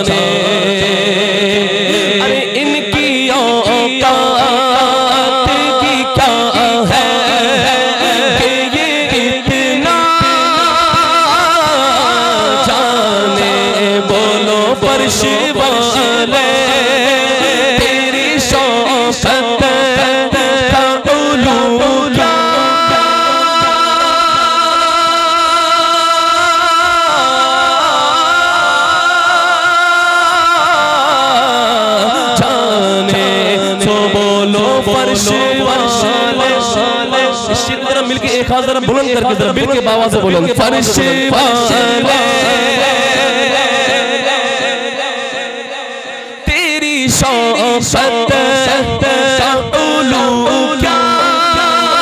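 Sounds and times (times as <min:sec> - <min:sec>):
man singing into a microphone: 0:00.0 - 0:52.0.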